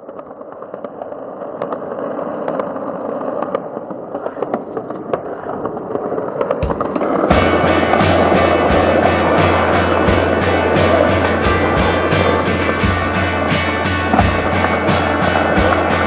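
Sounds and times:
skateboard wheels rolling on asphalt: 0:00.0 - 0:16.0
heavy thump: 0:06.6 - 0:16.0.

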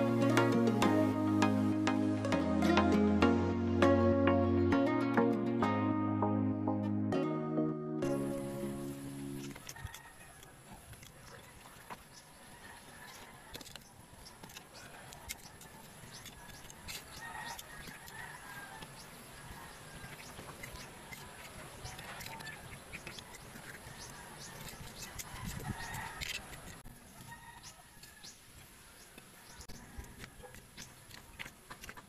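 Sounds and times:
birds chirping: 0:08.0 - 0:31.8.

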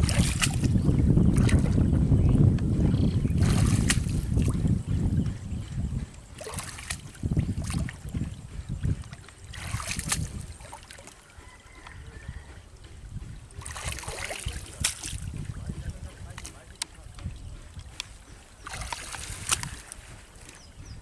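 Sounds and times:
hands splashing in muddy water: 0:00.0 - 0:01.8, 0:03.4 - 0:04.6, 0:06.4 - 0:08.1, 0:09.0 - 0:11.2, 0:13.6 - 0:15.4, 0:18.6 - 0:20.6.

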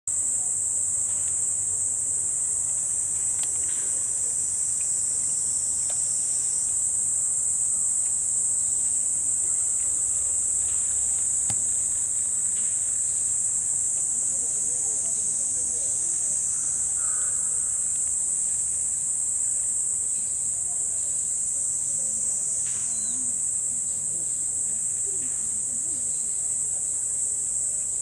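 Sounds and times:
high-pitched insect chorus: 0:00.1 - 0:28.0
faint clicks: 0:04.7 - 0:06.8.

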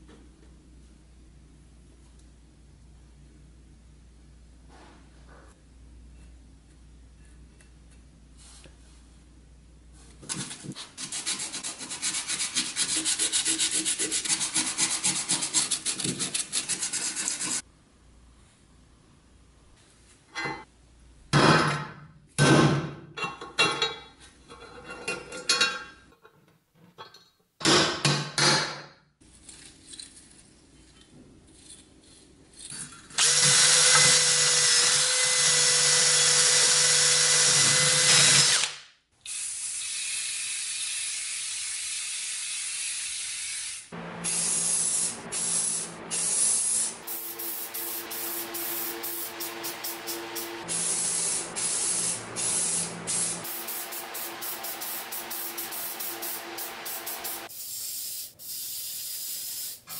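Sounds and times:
spray-paint can hissing: 0:39.6 - 0:59.9
drill spinning wire brush on metal: 0:46.9 - 0:57.5.

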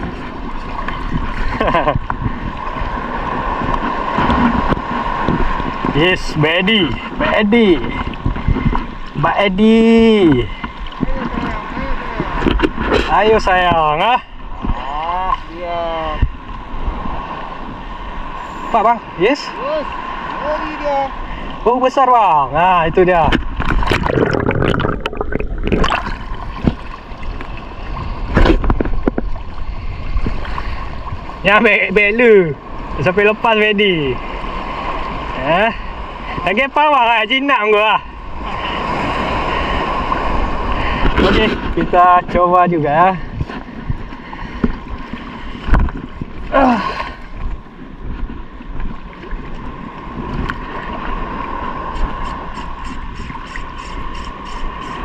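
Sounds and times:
water sloshing: 0:00.0 - 0:06.0, 0:10.3 - 0:13.2, 0:23.0 - 0:31.5
wind on microphone: 0:00.0 - 0:18.8, 0:22.5 - 0:33.1, 0:38.1 - 0:55.0
seawater sloshing and gurgling: 0:00.0 - 0:36.8, 0:38.0 - 0:55.0.

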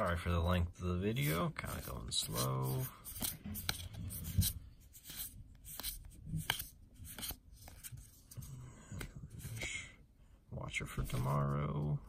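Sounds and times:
cards sliding against each other: 0:01.1 - 0:08.4.

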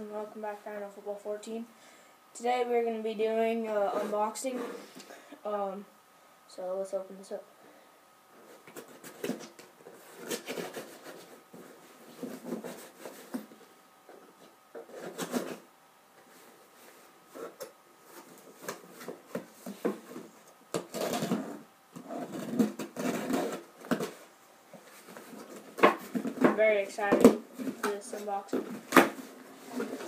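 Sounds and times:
cardboard and tape scraping: 0:08.4 - 0:15.7, 0:16.3 - 0:30.0.

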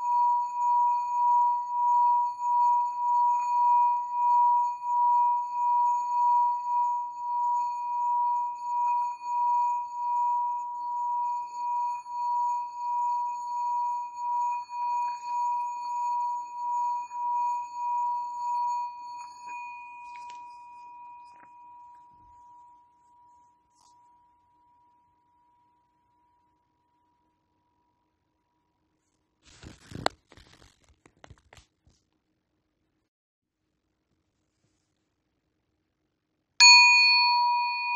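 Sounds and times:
singing bowl ringing: 0:00.0 - 0:26.6, 0:36.6 - 0:37.9.

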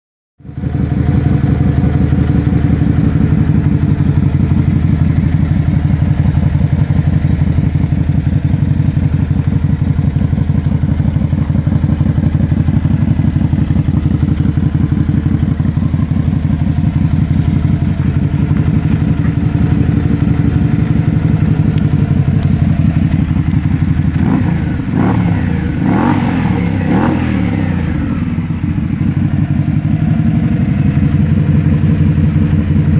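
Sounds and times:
motorcycle engine idling: 0:00.4 - 0:32.9
engine revving: 0:17.0 - 0:32.9.

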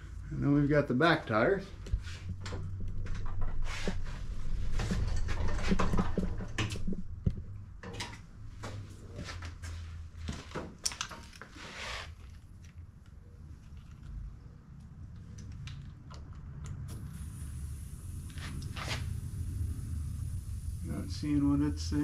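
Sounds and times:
low rumble: 0:16.4 - 0:22.0
short hiss: 0:16.9 - 0:22.0.

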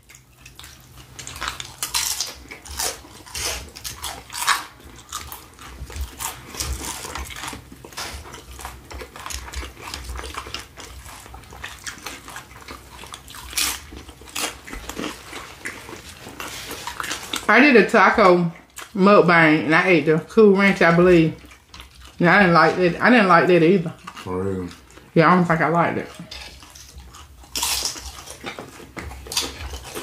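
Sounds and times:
people crunching tortilla chips: 0:00.0 - 0:17.5, 0:23.8 - 0:25.2, 0:26.1 - 0:30.0.

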